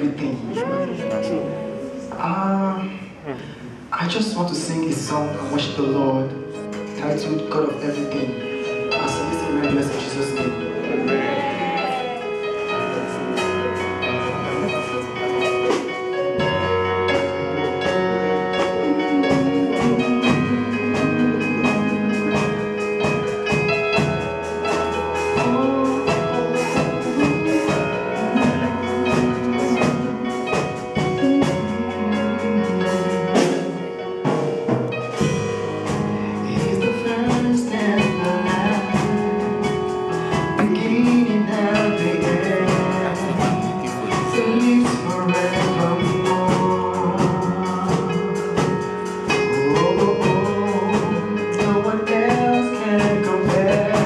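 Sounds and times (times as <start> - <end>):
keyboard accompaniment: 0.0 - 54.0
steady drum beat: 8.3 - 54.0
man singing into a microphone: 17.6 - 22.7, 25.3 - 30.3, 36.4 - 54.0.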